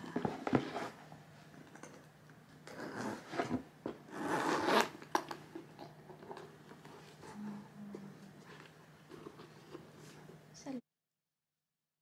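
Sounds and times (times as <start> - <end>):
metal zip rasping: 4.1 - 5.0.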